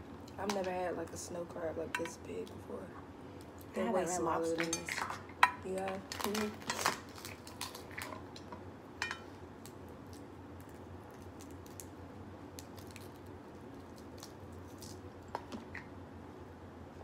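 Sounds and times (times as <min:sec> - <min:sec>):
crab shell cracking by hand: 0:06.1 - 0:08.5, 0:09.6 - 0:15.9.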